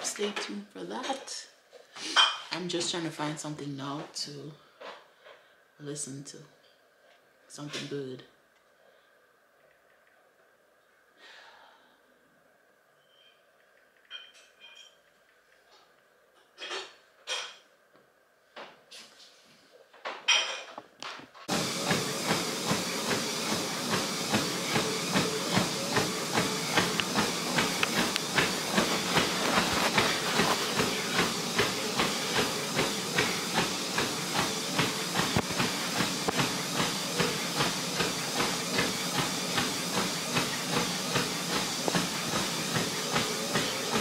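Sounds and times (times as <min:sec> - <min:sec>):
treadmill belt and motor hiss: 0:11.2 - 0:15.8, 0:18.6 - 0:44.0
footfalls on treadmill belt: 0:21.0 - 0:44.0.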